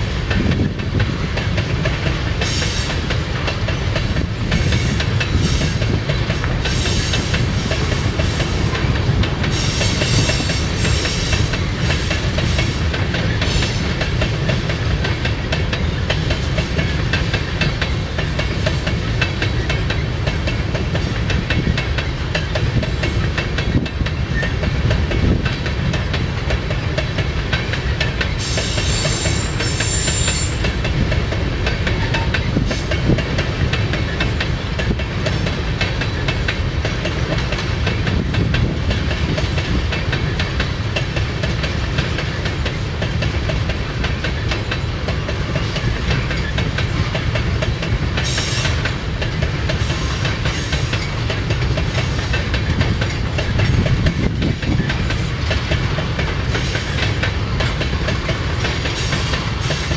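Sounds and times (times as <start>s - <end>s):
freight train rumbling past: 0.0s - 59.9s
wheels clicking over rail joints: 0.0s - 59.9s
high wheel squeal: 28.4s - 30.7s.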